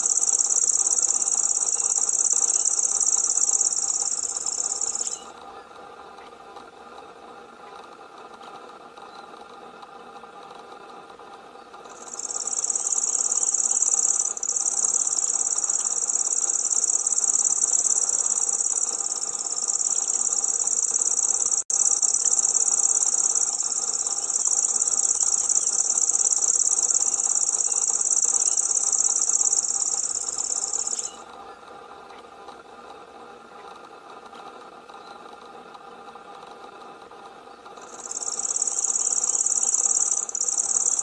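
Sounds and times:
bird reeling trill: 0:00.0 - 0:05.4, 0:11.9 - 0:31.2, 0:37.8 - 0:41.0
faint steady hum: 0:00.0 - 0:41.0.

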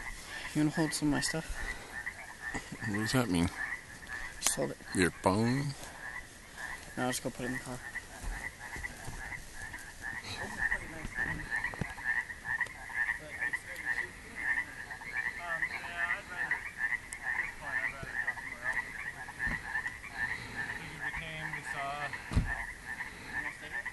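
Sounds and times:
frogs croaking: 0:00.0 - 0:23.9.

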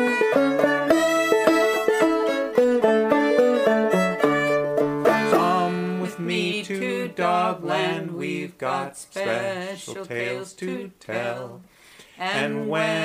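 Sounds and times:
plucked banjo music: 0:00.0 - 0:07.0.

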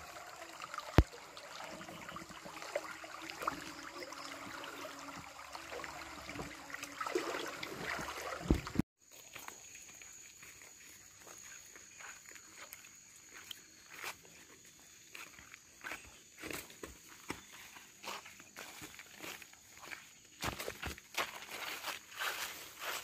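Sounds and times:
stream running over rocks: 0:00.0 - 0:08.8
water splashing: 0:00.0 - 0:08.8.

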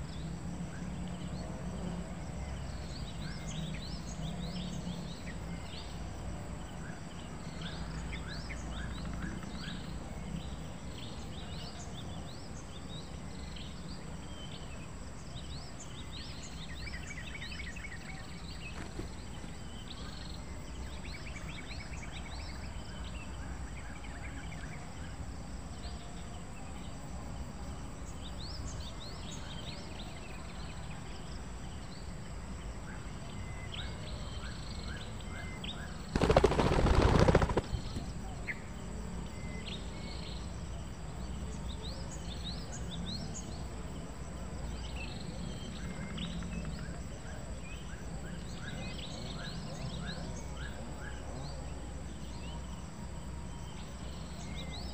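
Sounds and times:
small birds chirping: 0:02.1 - 0:23.4, 0:32.9 - 0:43.7
loud rough rustling: 0:36.1 - 0:38.1.

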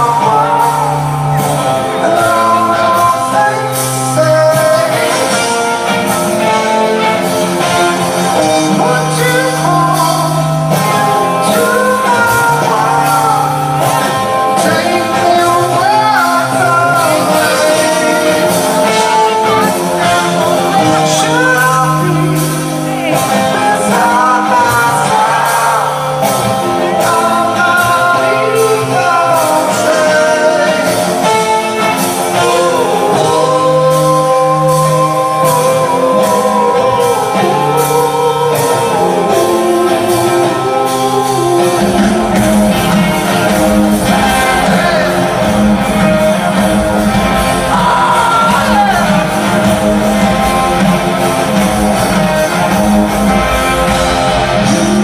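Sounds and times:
distant live rock band: 0:00.0 - 0:55.0
person singing: 0:00.0 - 0:55.0.

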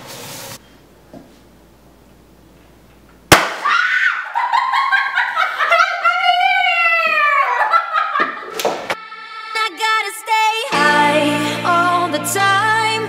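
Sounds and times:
party popper bang: 0:03.3 - 0:03.7
girls screaming and cheering: 0:03.6 - 0:08.4.

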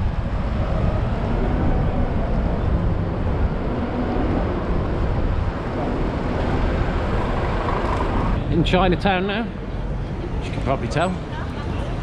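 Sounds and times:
street traffic noise: 0:00.0 - 0:12.0
wind rumble on microphone: 0:00.0 - 0:12.0.

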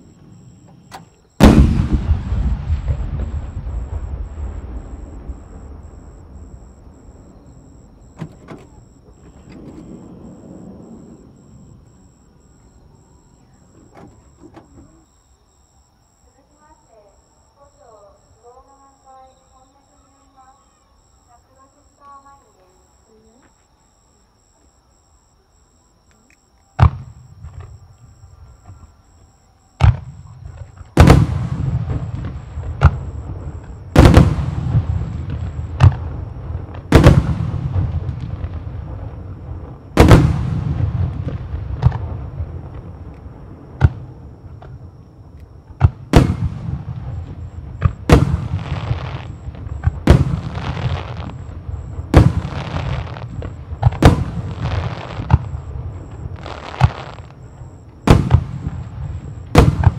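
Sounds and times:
firework shells booming: 0:00.0 - 0:11.5, 0:26.8 - 0:27.8, 0:29.8 - 0:59.9
echoing rumble: 0:01.4 - 0:08.2.

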